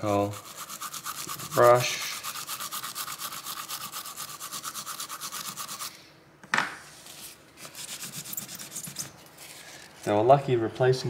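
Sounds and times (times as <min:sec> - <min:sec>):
toothbrush scrubbing circuit board: 0:00.1 - 0:05.9, 0:07.8 - 0:09.1
paper tissue rustling: 0:06.9 - 0:10.2.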